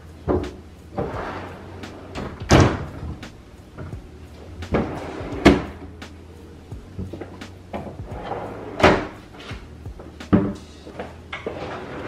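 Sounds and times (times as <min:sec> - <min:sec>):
cabinet doors knocking shut: 0:02.2 - 0:02.9.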